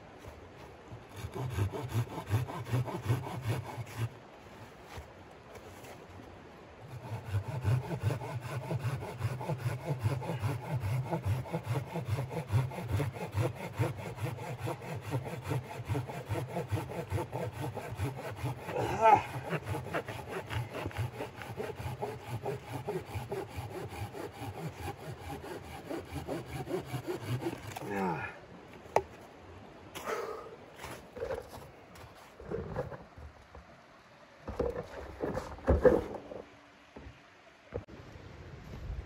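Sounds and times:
hand saw cutting wood: 1.1s - 4.1s, 6.8s - 28.2s, 34.6s - 36.4s.

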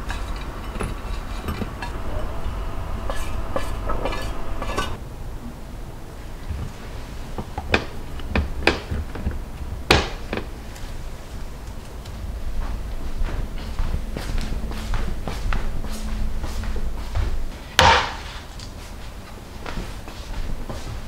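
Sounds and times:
chopsticks scraping metal tray: 0.0s - 5.0s.

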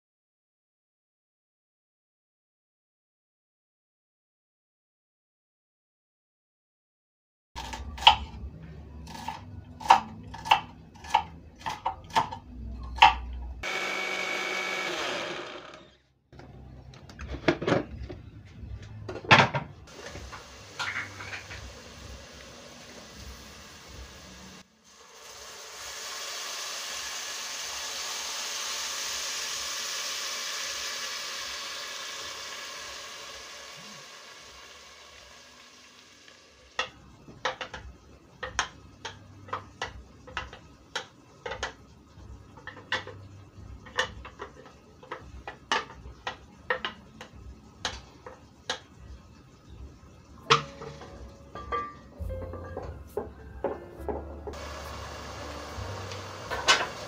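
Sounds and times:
liquid sizzling in hot pot: 19.9s - 37.0s, 54.5s - 57.0s
wooden spoon knocking metal pot: 50.5s - 54.6s.

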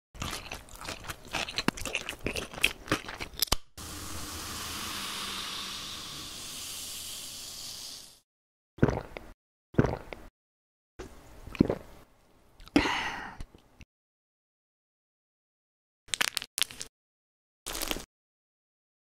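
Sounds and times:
soda fizzing: 3.8s - 8.2s.

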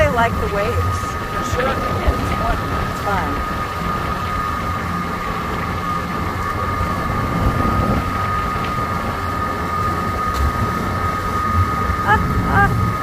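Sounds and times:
motorboat engine running: 0.0s - 13.0s.

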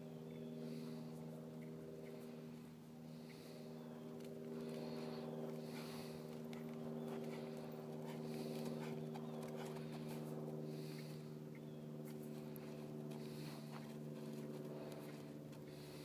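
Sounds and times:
steady low hum: 0.0s - 16.0s
hoofbeats on soft dirt: 3.3s - 16.0s.

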